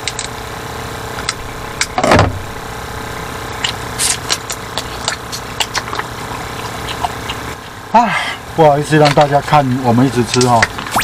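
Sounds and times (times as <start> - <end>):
mechanical hum: 0.0 - 11.0
crab shells cracking: 3.6 - 7.5.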